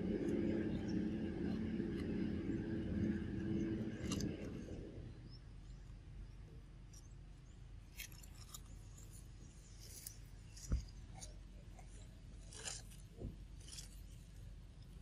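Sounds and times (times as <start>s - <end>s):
dry leaf crackling: 7.9s - 15.0s.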